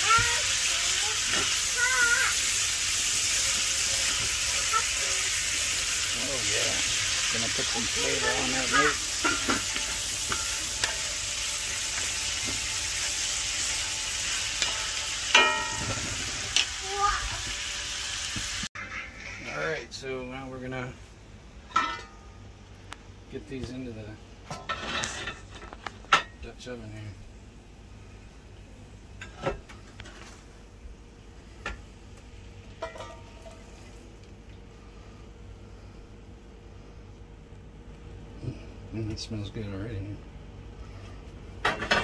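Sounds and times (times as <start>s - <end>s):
vegetables sizzling in a skillet: 0.0s - 18.7s
cookware clanking: 8.2s - 16.4s, 32.8s - 33.6s
low steady hum: 18.8s - 42.0s.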